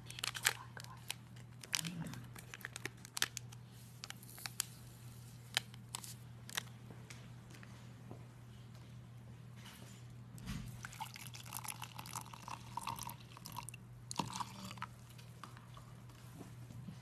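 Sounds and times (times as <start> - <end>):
water pouring into metal mug: 10.9 - 14.8.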